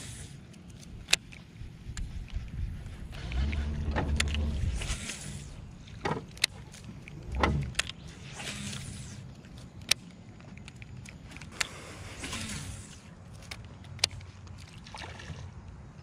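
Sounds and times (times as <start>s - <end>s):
sharp clicks: 6.2s - 8.1s.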